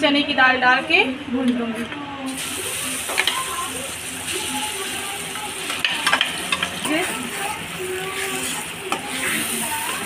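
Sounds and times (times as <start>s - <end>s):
paste sizzling in hot oil: 2.3s - 6.1s, 7.0s - 10.0s.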